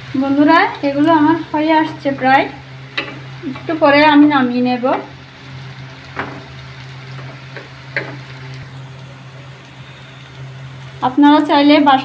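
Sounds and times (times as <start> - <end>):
food deep-frying in oil: 0.0 - 12.0
steady low hum: 0.0 - 12.0
wooden spatula knocking pan: 7.2 - 8.2.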